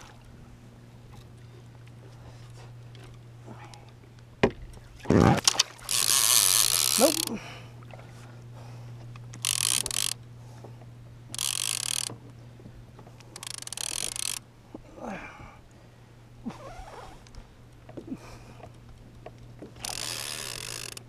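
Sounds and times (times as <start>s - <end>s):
fishing reel ratcheting clicks: 5.4s - 7.4s, 9.3s - 10.2s, 11.3s - 12.2s, 13.2s - 14.4s, 19.8s - 21.0s.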